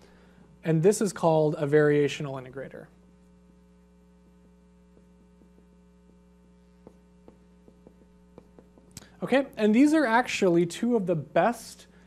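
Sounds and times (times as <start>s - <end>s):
faint electrical hum: 0.0s - 12.0s
marker tapping on whiteboard: 6.8s - 8.9s.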